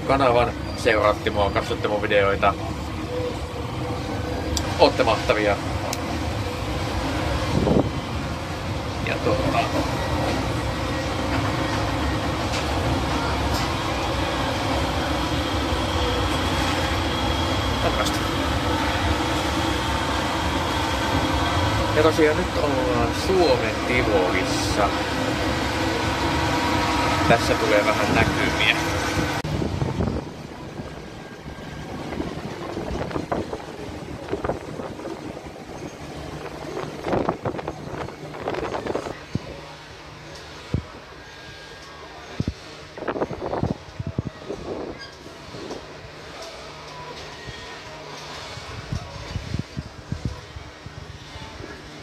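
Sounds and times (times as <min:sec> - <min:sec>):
ferris wheel low rumble: 0:00.0 - 0:52.0
wind buffeting microphone: 0:06.0 - 0:13.0, 0:23.7 - 0:39.6, 0:42.4 - 0:45.9, 0:48.6 - 0:51.6.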